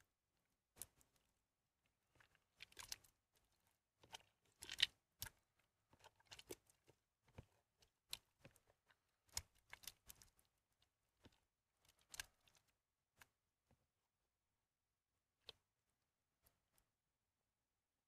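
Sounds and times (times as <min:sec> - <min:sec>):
soap crackling and crunching: 0:02.0 - 0:13.4.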